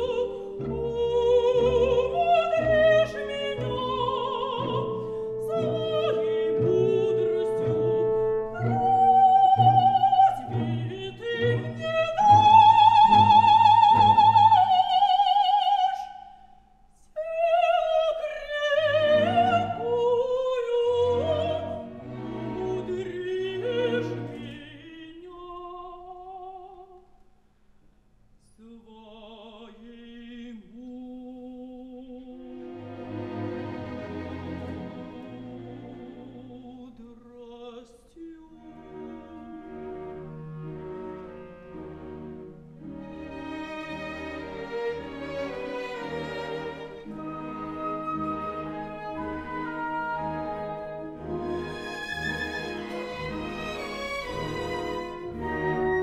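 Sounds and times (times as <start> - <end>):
symphony orchestra: 0.0 - 16.3, 17.0 - 27.0, 31.4 - 56.0
woman singing opera: 0.0 - 16.4, 17.0 - 27.0, 28.5 - 32.7, 34.6 - 40.2.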